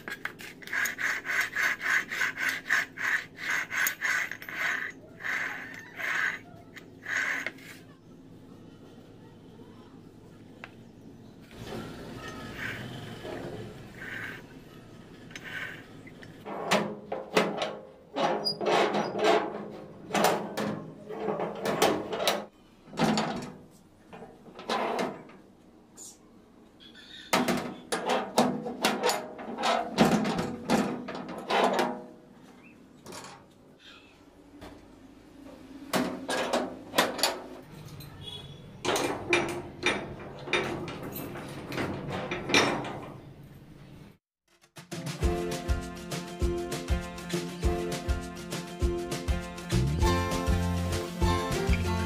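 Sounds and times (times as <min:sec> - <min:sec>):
door bolt scraping: 0:15.2 - 0:22.5.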